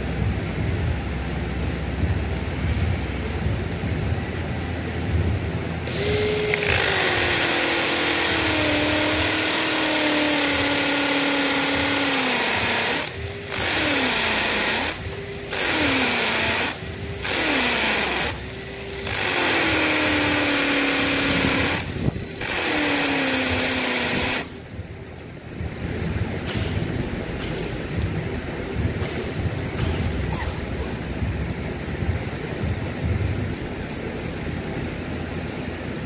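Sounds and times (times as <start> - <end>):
drill motor whine: 5.8 - 24.6
drill bit grinding concrete: 5.9 - 24.5.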